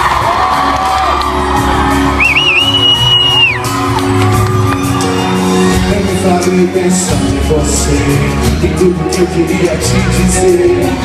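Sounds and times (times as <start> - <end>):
audience whooping and shouting: 0.0 - 6.2
acoustic rock band playing: 0.0 - 11.0
high whistle: 2.2 - 3.8.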